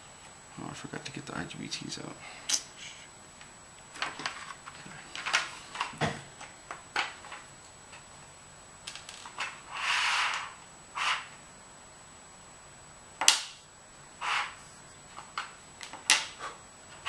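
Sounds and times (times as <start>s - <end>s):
scraping rustle: 9.1s - 11.4s, 14.2s - 15.4s.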